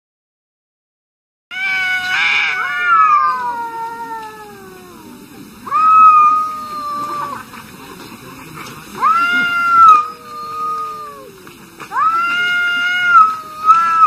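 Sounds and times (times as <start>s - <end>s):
cats yowling: 1.5s - 7.5s, 9.0s - 14.0s.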